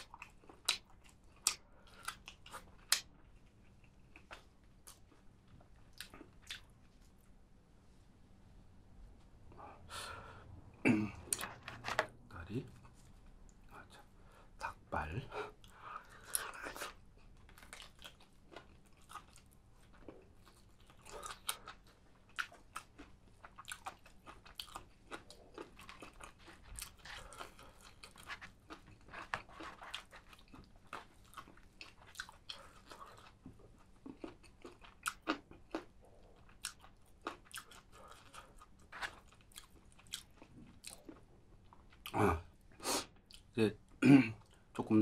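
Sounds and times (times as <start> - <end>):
person chewing crunchy food: 0.0 - 7.2, 15.5 - 43.5.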